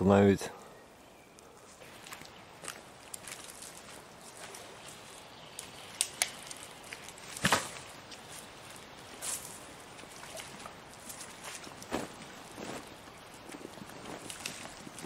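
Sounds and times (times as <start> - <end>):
faint water splashing: 1.8 - 15.0.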